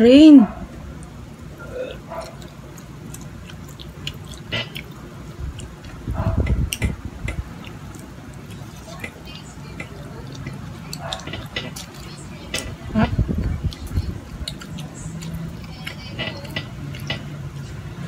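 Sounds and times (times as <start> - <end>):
chewing clicks and smacks: 0.9 - 18.0.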